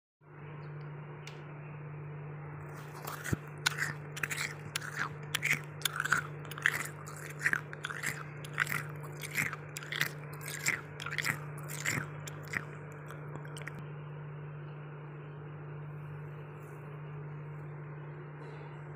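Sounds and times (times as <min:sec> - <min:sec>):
steady low hum: 0:00.2 - 0:18.9
frost crunching: 0:02.7 - 0:13.8.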